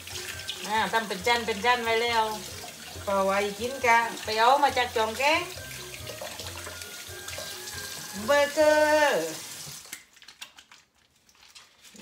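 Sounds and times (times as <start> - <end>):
wet hands rubbing: 9.5 - 12.0.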